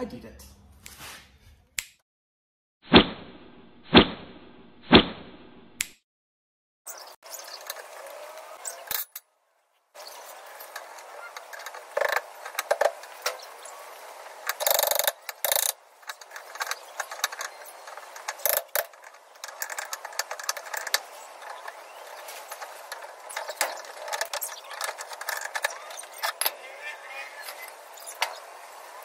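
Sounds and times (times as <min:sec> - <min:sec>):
socket ratchet clicking: 0:14.5 - 0:21.0.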